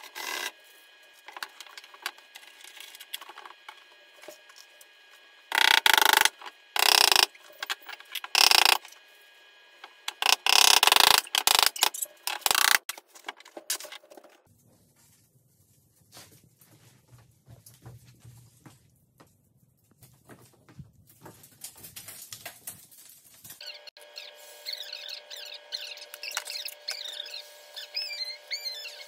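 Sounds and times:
power drill driving screws: 5.5s - 7.3s, 8.3s - 8.8s, 10.1s - 12.8s.

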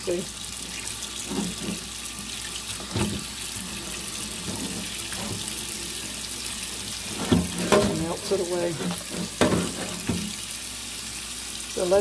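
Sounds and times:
tap water splashing on metal tray: 1.1s - 10.5s.

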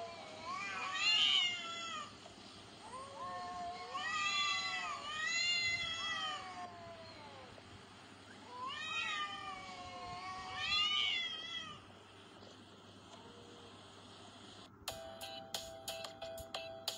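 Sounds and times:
cats yowling: 0.0s - 2.1s, 2.8s - 7.6s, 8.4s - 11.9s.

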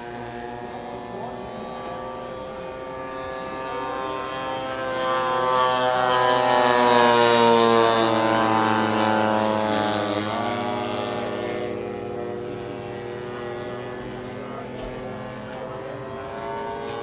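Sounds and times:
model plane engine flyby: 0.0s - 17.0s.

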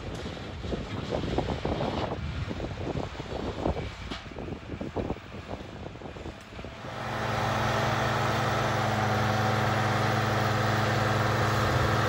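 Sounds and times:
small engine running: 6.8s - 12.0s.

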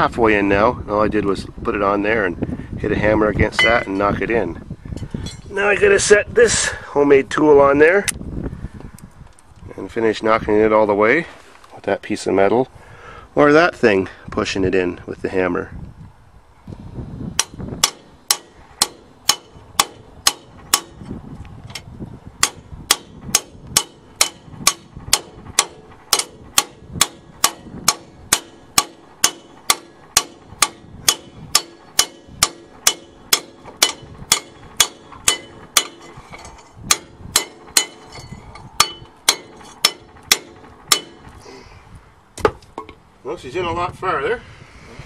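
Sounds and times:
hammer striking steel: 3.6s - 4.1s, 17.4s - 21.0s, 22.4s - 41.3s.

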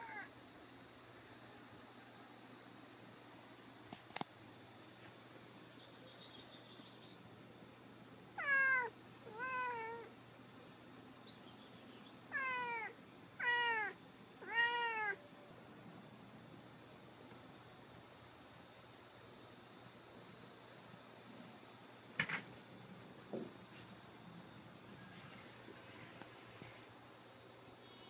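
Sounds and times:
cat meowing: 0.0s - 0.3s, 8.4s - 10.1s, 12.3s - 15.2s.

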